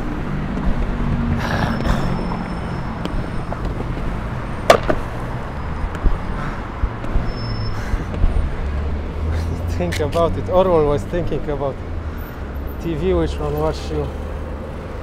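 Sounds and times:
passing traffic: 0.0s - 15.0s
skateboard wheels rolling on pavement: 2.8s - 7.3s
skateboard clack: 4.7s - 5.0s.

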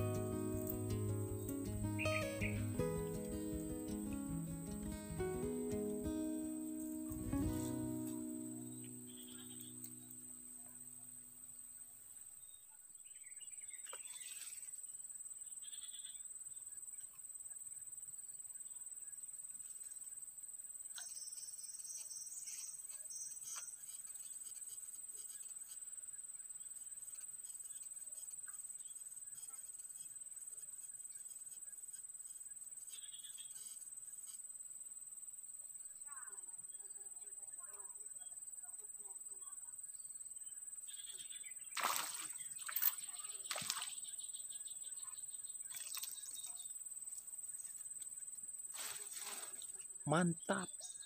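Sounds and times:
short high chirps: 0.0s - 10.3s
insects droning: 0.0s - 51.0s
fish splashing in water: 41.8s - 43.9s.

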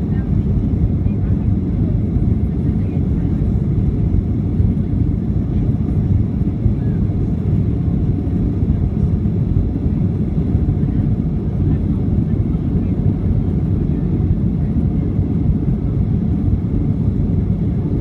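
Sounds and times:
jet engines rumbling: 0.0s - 18.0s.

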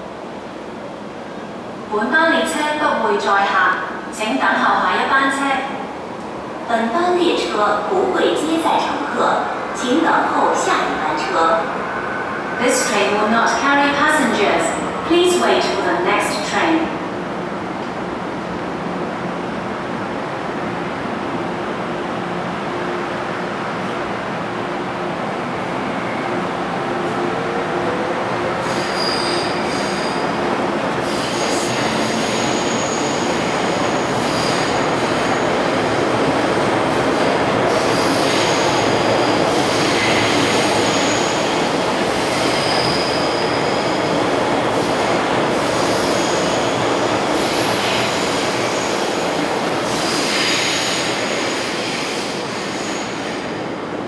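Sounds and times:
train wheels rumbling on rails: 6.1s - 54.0s
high-pitched wheel squeals: 28.7s - 30.2s.

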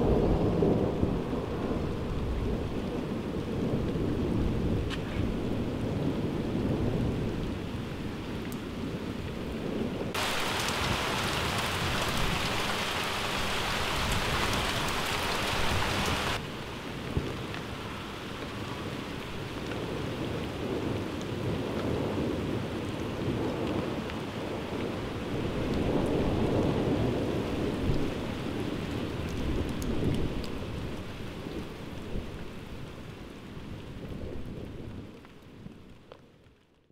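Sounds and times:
hissing downpour: 0.0s - 36.8s
steady rain: 0.0s - 36.9s
thunder rumbling: 9.4s - 16.4s.

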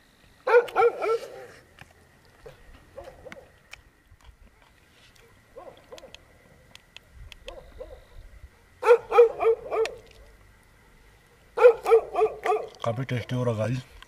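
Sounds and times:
dogs barking: 0.4s - 1.6s, 2.9s - 3.5s, 5.3s - 6.2s, 7.4s - 8.1s, 8.8s - 11.0s, 11.6s - 12.8s.

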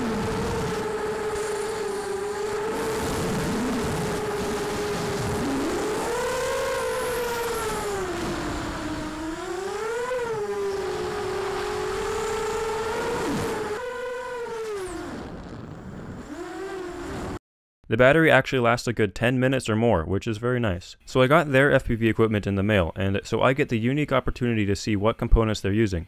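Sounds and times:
drone motors whining: 0.0s - 17.4s.

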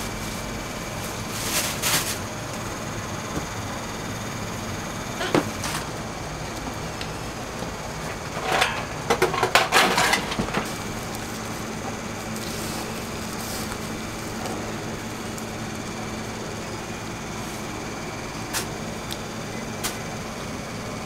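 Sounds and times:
steady hum: 0.0s - 21.0s
cookware clattering and scraping: 8.2s - 10.7s.

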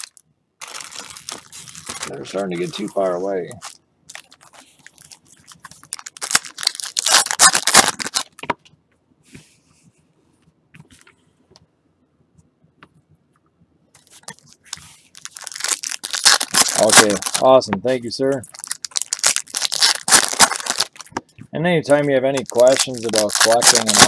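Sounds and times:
foil wrappers tearing and crinkling: 0.0s - 8.4s, 14.2s - 17.5s, 18.4s - 21.1s, 22.3s - 24.0s
cards being handled: 21.9s - 24.0s.

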